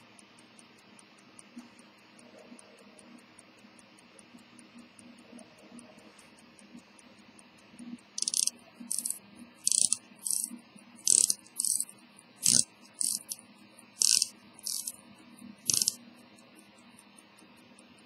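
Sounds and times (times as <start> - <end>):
watch ticking: 0.0 - 18.0
watch winding ratchet clicks: 8.2 - 15.0, 15.6 - 17.1.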